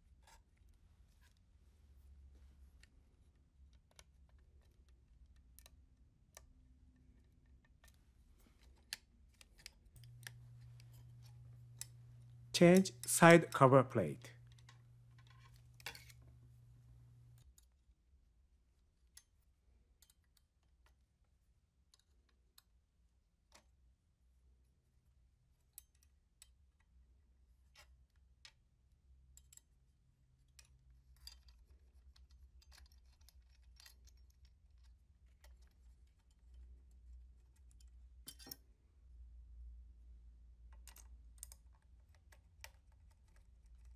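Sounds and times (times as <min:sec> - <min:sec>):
faint low hum: 0:07.1 - 0:17.8
metal parts clicking and tapping: 0:30.5 - 0:36.7, 0:37.5 - 0:38.6, 0:40.7 - 0:43.9.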